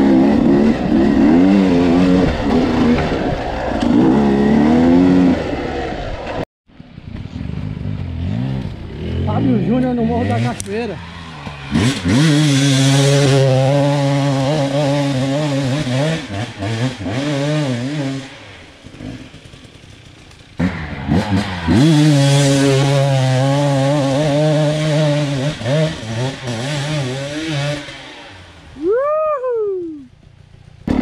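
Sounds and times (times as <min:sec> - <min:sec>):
dirt bike engine revving: 0:00.0 - 0:06.4, 0:07.0 - 0:29.0.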